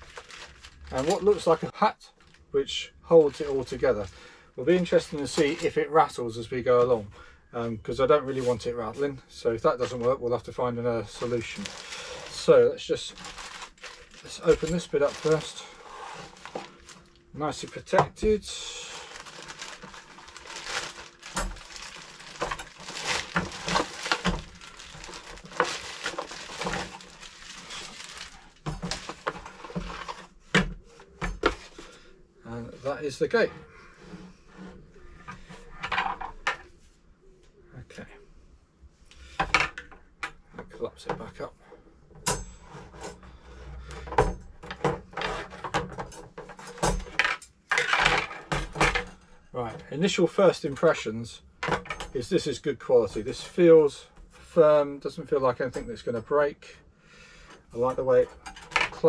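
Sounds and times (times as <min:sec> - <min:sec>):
packaging rustling and crinkling: 0:00.0 - 0:02.6, 0:03.2 - 0:03.9, 0:04.8 - 0:05.8, 0:11.0 - 0:30.4.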